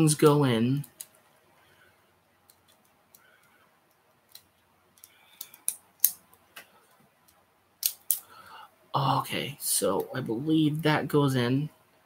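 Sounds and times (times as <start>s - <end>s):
plastic toy parts clicking: 4.3s - 6.2s, 7.3s - 8.2s.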